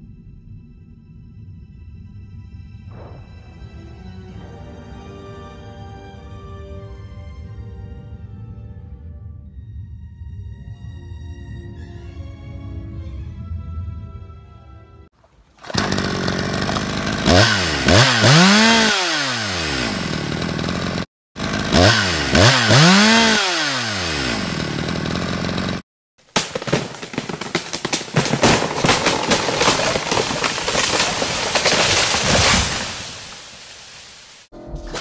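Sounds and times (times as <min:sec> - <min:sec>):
chainsaw revving in bursts: 0:15.6 - 0:25.8
rattling saw noise: 0:15.6 - 0:25.8.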